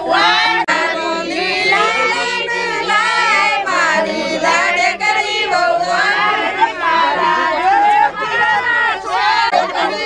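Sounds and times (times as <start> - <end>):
women singing together: 0.0 - 10.0.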